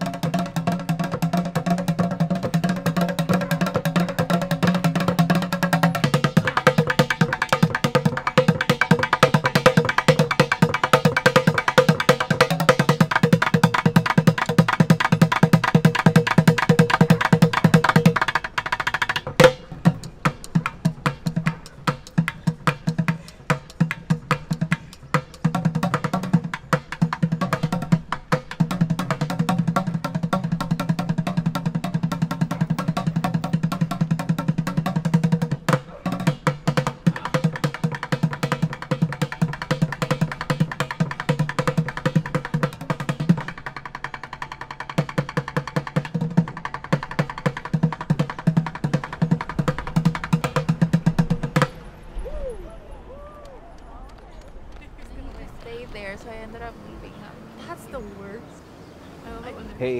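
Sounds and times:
bucket drum played with drumsticks: 0:00.0 - 0:51.8.

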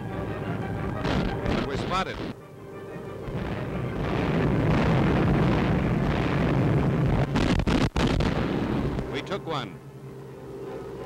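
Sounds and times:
flak explosions rumbling: 0:00.8 - 0:02.4, 0:03.2 - 0:09.4.

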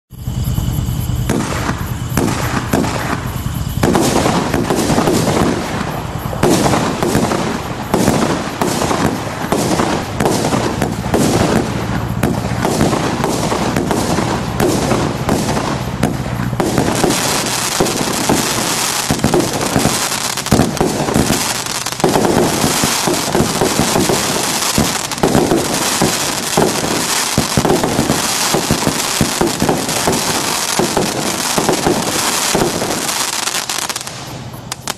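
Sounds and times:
firework pops and bangs: 0:00.6 - 0:34.9.

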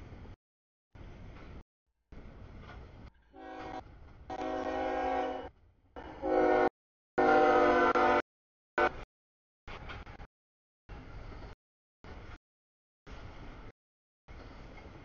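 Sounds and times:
freight train rumble: 0:00.0 - 0:00.4, 0:01.0 - 0:08.2, 0:10.9 - 0:12.4, 0:13.1 - 0:13.7, 0:14.3 - 0:15.0
locomotive air horn blasts: 0:03.4 - 0:08.2, 0:08.8 - 0:09.0.

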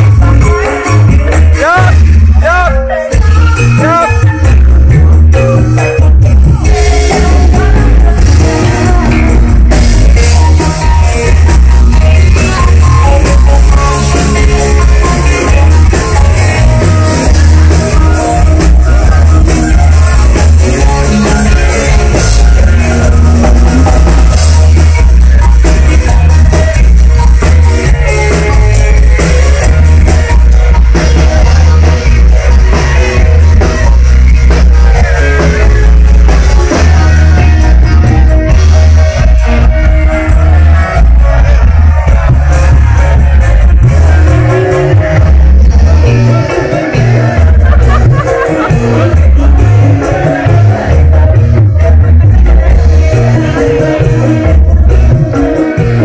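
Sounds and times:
live band playing: 0:00.0 - 0:56.0.

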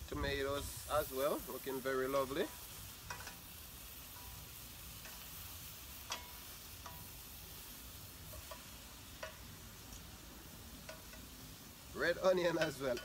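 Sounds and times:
vegetables sizzling in a pan: 0:00.0 - 0:13.0
metal tongs clicking on pan: 0:03.0 - 0:03.5, 0:05.0 - 0:07.2, 0:08.2 - 0:10.1, 0:10.8 - 0:11.4, 0:12.5 - 0:13.0.

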